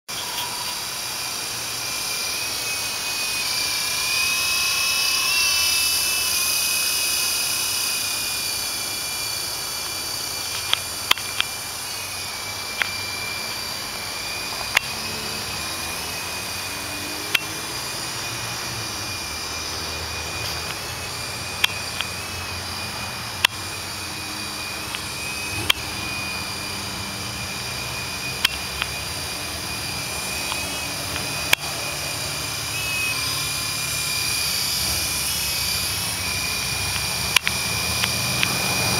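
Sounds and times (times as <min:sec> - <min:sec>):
toy helicopter motor whine: 0:00.1 - 0:38.9
sharp ticks: 0:00.2 - 0:13.8, 0:14.5 - 0:18.7, 0:19.6 - 0:22.5, 0:24.8 - 0:25.9, 0:28.4 - 0:29.0, 0:30.3 - 0:31.8, 0:36.8 - 0:38.9.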